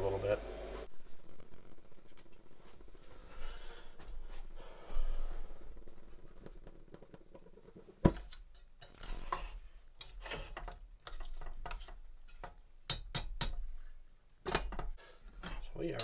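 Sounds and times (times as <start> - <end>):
metal spoon scraping pot: 8.7 - 12.5.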